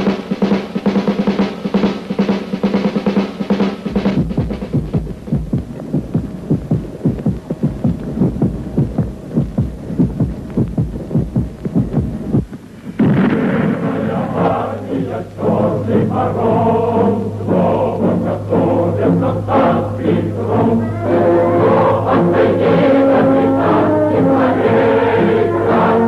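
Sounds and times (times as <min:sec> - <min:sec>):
fast even drumbeat: 0:00.0 - 0:12.6
choir chanting: 0:13.6 - 0:26.0.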